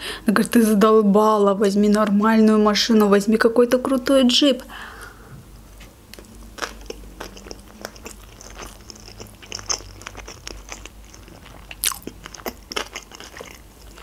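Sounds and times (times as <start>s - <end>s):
close chewing with mouth clicks: 6.1s - 14.0s.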